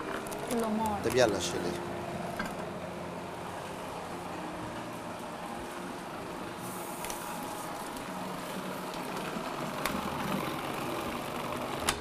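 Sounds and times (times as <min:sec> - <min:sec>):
gas burners noise: 0:00.0 - 0:12.0.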